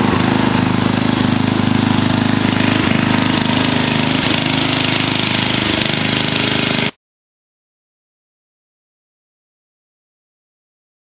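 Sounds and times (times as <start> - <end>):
small engine running: 0.0 - 7.0.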